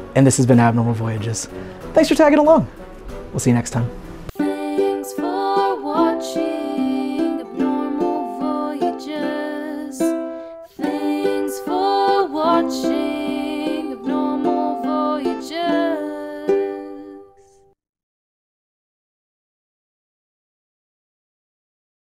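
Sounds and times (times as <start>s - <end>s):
background music with sustained melody: 0.0s - 17.6s.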